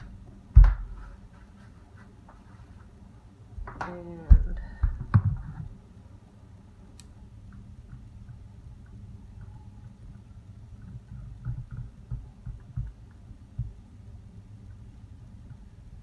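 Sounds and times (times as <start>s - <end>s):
dull thumps and knocks: 0.5s - 1.1s.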